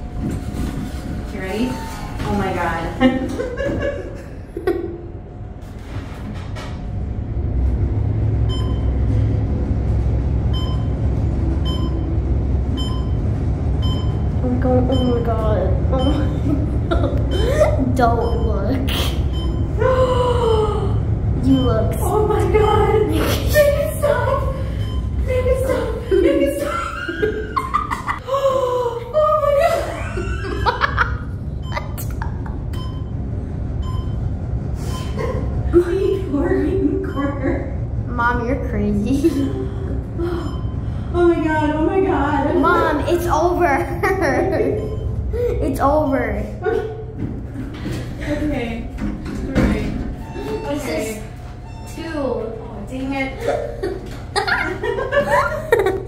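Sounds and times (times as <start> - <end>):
elevator low rumble: 0.0 - 56.0
woman laughing: 2.9 - 5.1, 16.0 - 18.0, 25.3 - 32.8, 35.0 - 37.7, 39.1 - 40.5, 43.9 - 45.7, 46.6 - 48.4, 53.2 - 56.0.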